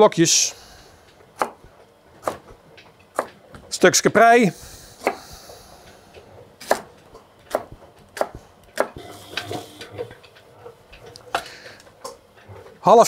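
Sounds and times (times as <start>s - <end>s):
knife chopping on cutting board: 1.4s - 2.5s, 3.1s - 3.4s, 5.0s - 5.5s, 6.6s - 9.1s.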